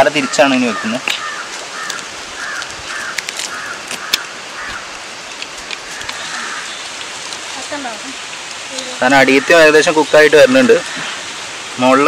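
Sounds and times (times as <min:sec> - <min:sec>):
meat sizzling over charcoal: 0:00.0 - 0:12.0
sharp crackles: 0:01.0 - 0:09.2.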